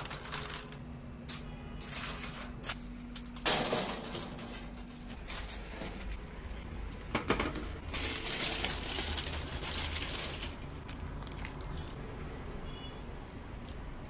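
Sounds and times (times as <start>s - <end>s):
aluminium foil crinkling: 0.0s - 6.1s, 7.8s - 12.0s.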